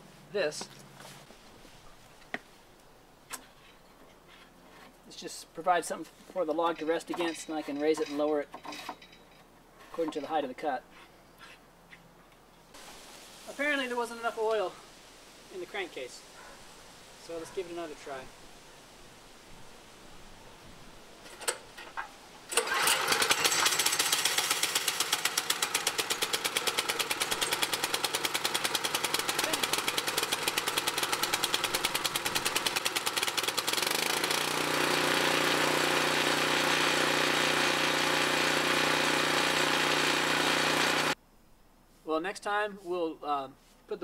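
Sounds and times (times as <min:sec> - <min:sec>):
engine starter clicks: 0:22.5 - 0:31.7
small gasoline engine running: 0:22.5 - 0:41.2.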